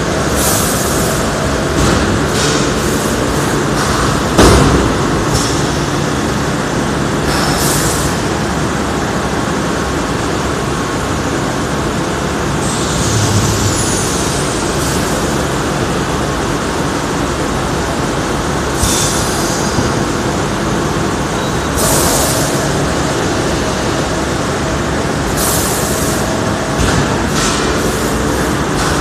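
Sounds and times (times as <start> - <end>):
air hissing: 0.3 - 1.3, 12.6 - 15.6, 18.8 - 20.1, 21.8 - 22.7.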